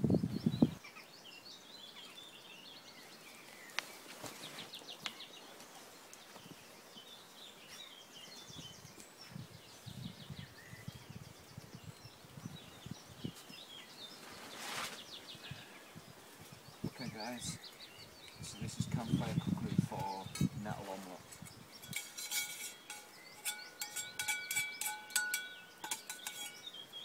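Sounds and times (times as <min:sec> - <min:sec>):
wind gusts on microphone: 0:00.0 - 0:00.8, 0:08.5 - 0:22.2
songbirds chirping and trilling: 0:00.0 - 0:27.0
short rustle: 0:14.2 - 0:15.2.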